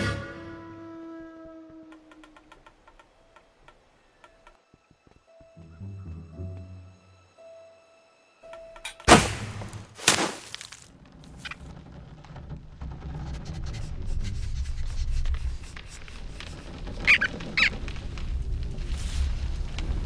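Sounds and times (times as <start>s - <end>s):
cartoon rodent squeaks: 17.1s - 17.7s.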